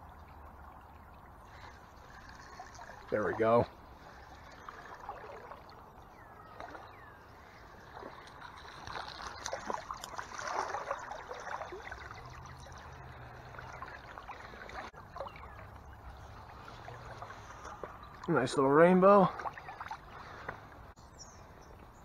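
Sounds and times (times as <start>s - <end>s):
stream flowing: 0.0s - 21.0s
fish splashing at water surface: 4.0s - 5.9s, 7.7s - 18.3s.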